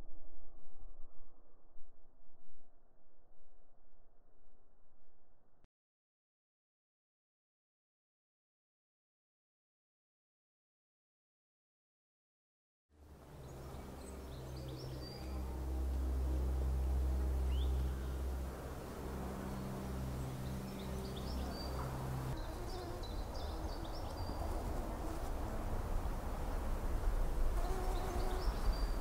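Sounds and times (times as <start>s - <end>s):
rough low rumble: 13.0s - 29.0s
steady low hum: 13.0s - 29.0s.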